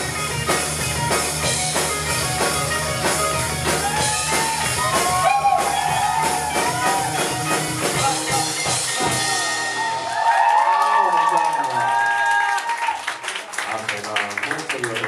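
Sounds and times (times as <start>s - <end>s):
drum kit: 0.0s - 10.7s
electric guitar: 0.0s - 10.7s.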